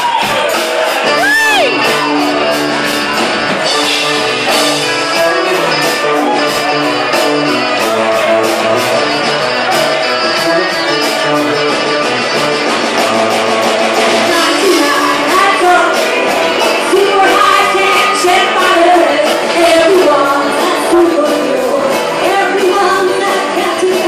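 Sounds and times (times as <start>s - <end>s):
live band playing: 0.0s - 24.0s
woman singing lead vocal: 14.3s - 24.0s.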